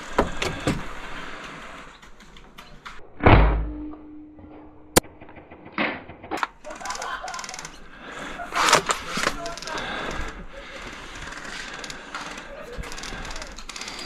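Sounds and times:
blaster firing thump: 3.2s - 4.1s.

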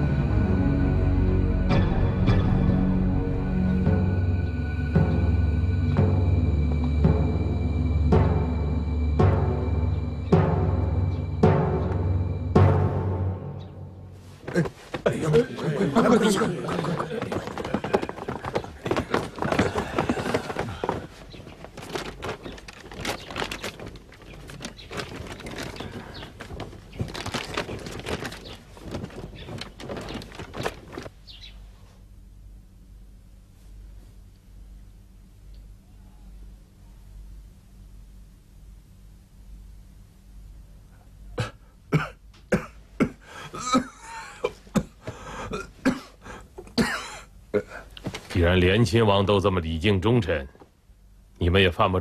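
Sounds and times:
cloth robes rustling: 14.0s - 32.0s, 48.0s - 48.5s
people coughing: 14.5s - 20.9s, 41.4s - 47.8s
throat clearing: 41.3s - 47.9s.

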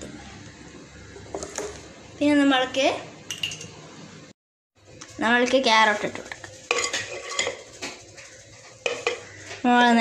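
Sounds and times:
metal plate scraping on pot rim: 6.7s - 9.6s.

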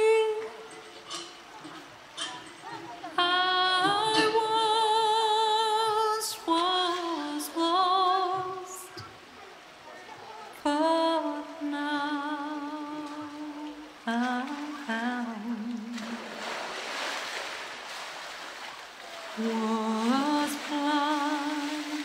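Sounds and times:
slow melody of wavering notes: 3.2s - 8.0s
animal splashing into water: 15.9s - 22.0s.

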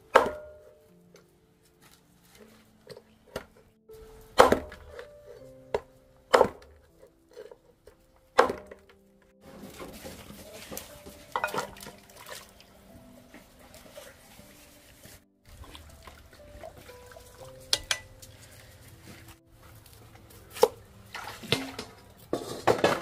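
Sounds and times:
faint background music: 0.0s - 23.0s
cleaver chopping bones on wood: 0.1s - 0.6s, 4.3s - 5.1s, 5.8s - 7.0s, 8.4s - 9.0s
clatter and knocks at metal pot: 21.5s - 23.0s.

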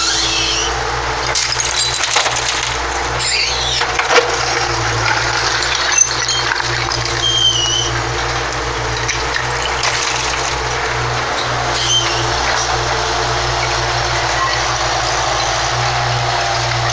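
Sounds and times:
short high squeals: 0.0s - 2.0s, 3.2s - 8.6s, 11.3s - 13.6s
excavator and dumper engines running: 0.0s - 16.9s
rubble clattering into dumper: 0.1s - 16.9s.

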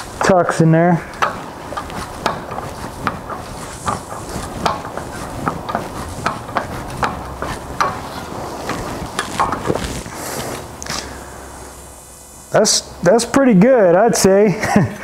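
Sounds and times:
hammer knocking on sheet metal: 2.2s - 8.0s.

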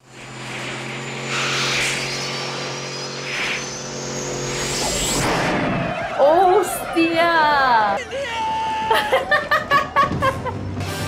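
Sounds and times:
crackling sparks: 0.0s - 6.1s
electric hum and high whine: 0.0s - 6.1s
sweeping rush: 0.0s - 9.9s.

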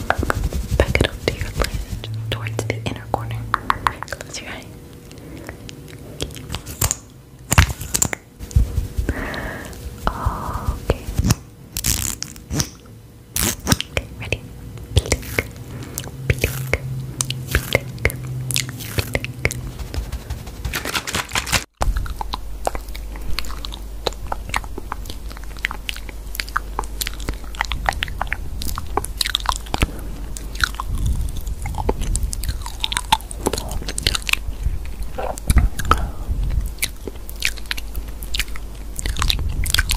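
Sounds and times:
steady low hum: 0.0s - 39.9s
crisp crunches and clicks: 20.1s - 29.9s.

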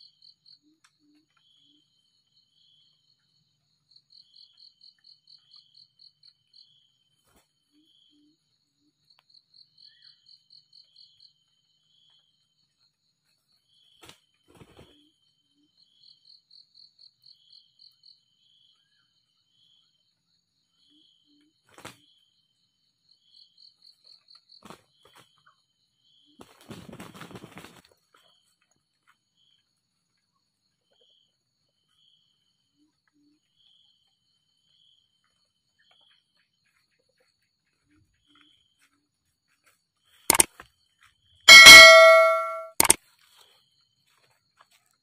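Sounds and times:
roosters wing-flapping: 14.0s - 15.0s, 21.7s - 22.0s, 26.4s - 28.3s
sharp clicks: 41.5s - 43.0s.

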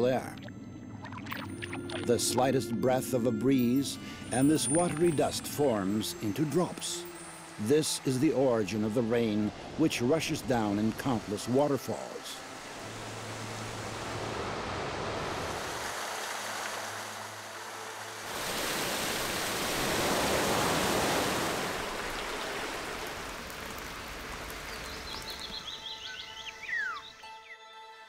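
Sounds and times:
waterfall rushing: 4.0s - 25.6s
bird chirps: 24.7s - 27.7s.

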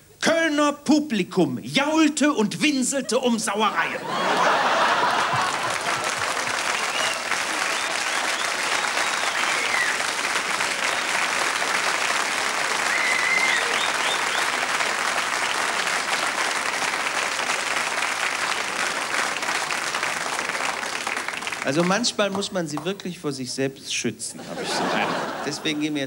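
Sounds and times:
audience applauding: 3.8s - 22.9s
short high calls: 6.8s - 10.0s, 12.8s - 14.6s.

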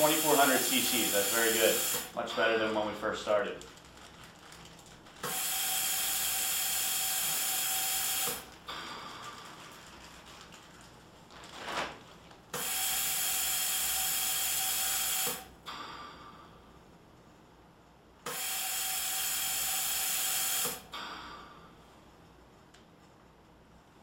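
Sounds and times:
ventilator gas hiss: 0.0s - 2.7s, 5.2s - 9.4s, 12.5s - 16.2s, 18.2s - 21.8s.

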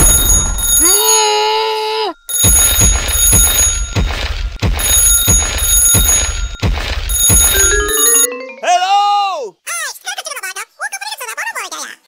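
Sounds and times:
alarm clock ringing: 2.3s - 4.0s, 4.8s - 8.8s.

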